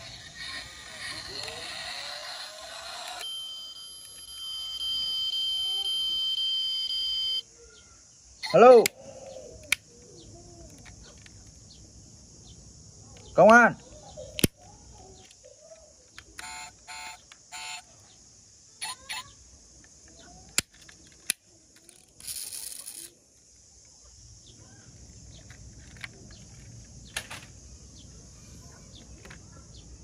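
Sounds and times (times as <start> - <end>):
toy car doors clicking: 0.0 - 3.4, 16.1 - 17.9, 18.8 - 19.2, 20.5 - 23.1
short electronic beeps: 3.2 - 7.4.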